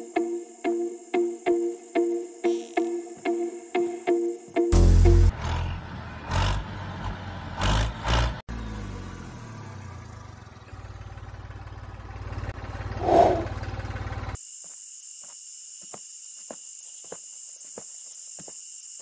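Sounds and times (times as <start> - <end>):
engine chugging: 4.6 - 14.4.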